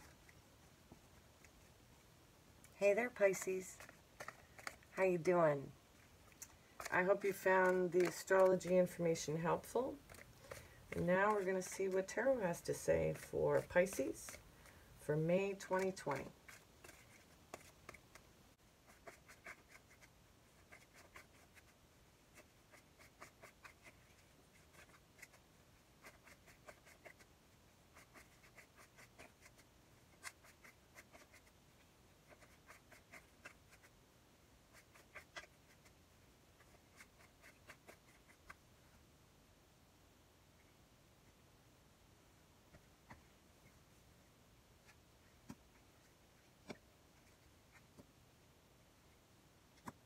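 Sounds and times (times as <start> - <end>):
cards being shuffled: 3.1 - 5.0, 6.3 - 11.7.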